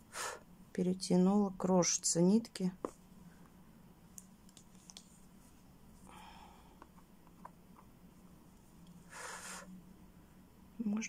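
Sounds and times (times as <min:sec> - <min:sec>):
low steady hum: 0:00.0 - 0:11.0
hands rustling yarn: 0:02.8 - 0:06.2.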